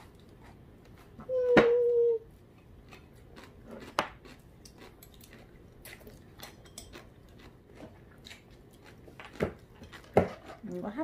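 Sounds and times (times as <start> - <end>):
chopsticks clicking on plates: 4.0 - 7.5.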